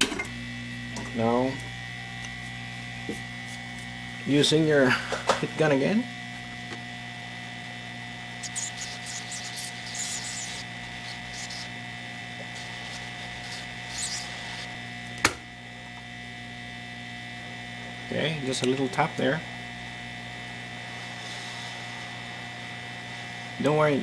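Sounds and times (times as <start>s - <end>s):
heat gun humming: 6.2s - 19.1s.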